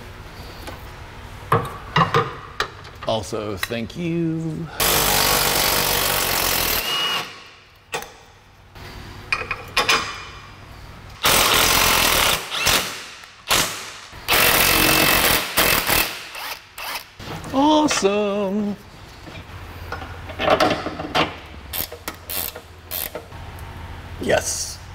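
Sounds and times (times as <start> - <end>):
impact wrench hammering: 11.2 - 17.0
tool and metal clanking: 19.9 - 23.3.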